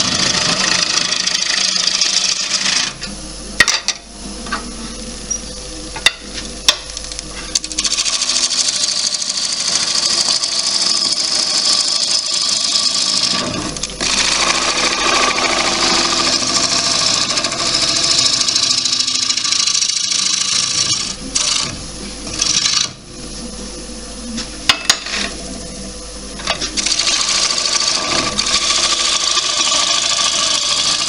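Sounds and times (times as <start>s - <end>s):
gouge shaving wood on lathe: 0.0s - 2.9s, 7.8s - 21.6s, 26.8s - 31.0s
lathe running: 0.0s - 31.0s.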